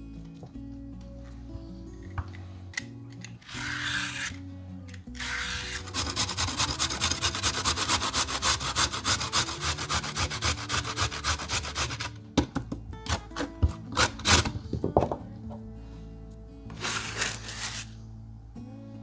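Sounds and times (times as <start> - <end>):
background music: 0.0 - 19.0
peeler scraping carrot: 3.4 - 4.4, 5.0 - 12.2, 13.0 - 14.6, 16.7 - 18.0
carrot grating on metal grater: 3.5 - 4.4, 5.1 - 12.2, 13.1 - 14.5, 16.8 - 17.9.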